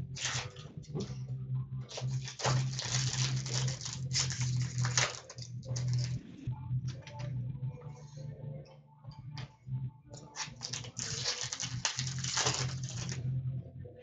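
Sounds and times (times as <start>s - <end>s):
packaging rustling and crinkling: 1.9s - 6.2s, 10.2s - 13.2s.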